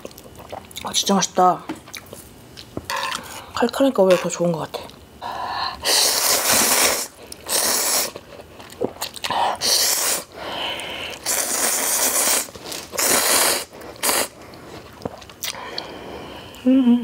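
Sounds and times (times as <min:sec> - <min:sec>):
person slurping noodles: 0:05.8 - 0:08.3, 0:09.0 - 0:10.3, 0:11.1 - 0:14.4.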